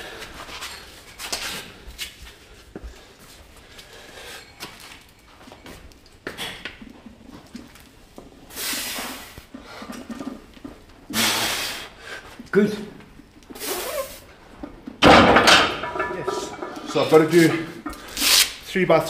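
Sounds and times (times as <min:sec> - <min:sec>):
forceful hissing exhales: 0:08.5 - 0:09.4, 0:11.1 - 0:12.0, 0:13.6 - 0:14.3.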